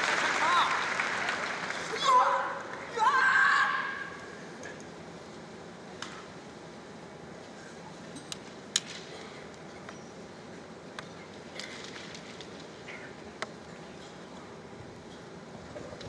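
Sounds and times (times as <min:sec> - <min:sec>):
murmur of arena crowd: 0:00.0 - 0:16.0.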